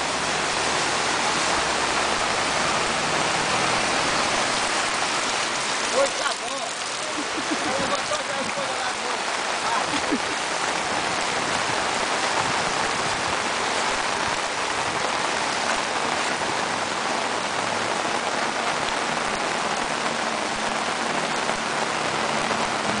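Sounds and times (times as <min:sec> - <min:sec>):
heavy rain on a street: 0:00.0 - 0:23.0.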